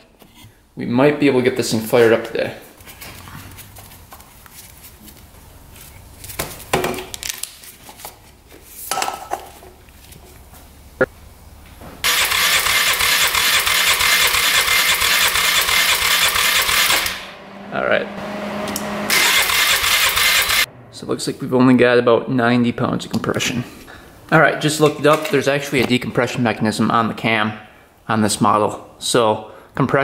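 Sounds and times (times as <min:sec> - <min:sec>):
engine starter cranking: 0:12.0 - 0:17.4, 0:18.3 - 0:20.7.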